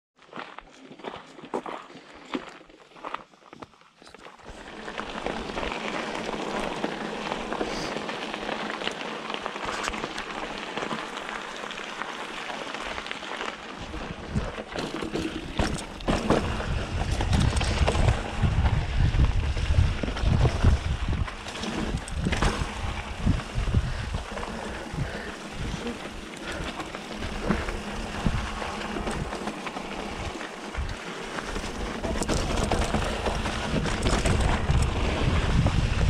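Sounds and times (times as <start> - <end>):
bike tyres rolling on dirt: 0.2 - 36.0
wind rumble on microphone: 13.8 - 36.0.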